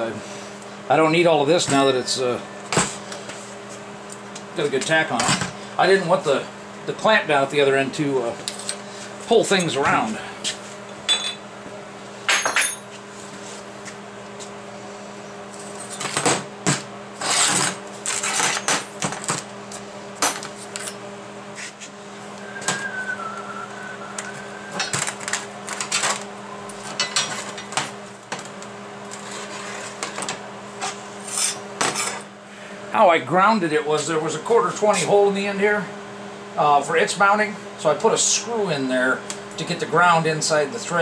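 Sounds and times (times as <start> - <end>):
steady low hum: 0.0 - 41.0
metal parts clanking on steel table: 12.3 - 12.8, 27.0 - 27.8.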